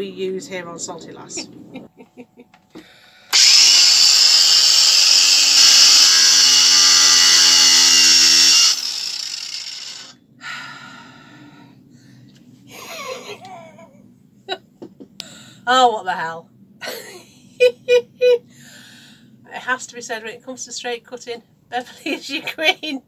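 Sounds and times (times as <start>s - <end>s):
woman laughing: 1.4s - 2.6s, 12.7s - 15.1s, 16.8s - 18.4s, 21.8s - 23.0s
angle grinder cutting plastic: 3.3s - 10.1s.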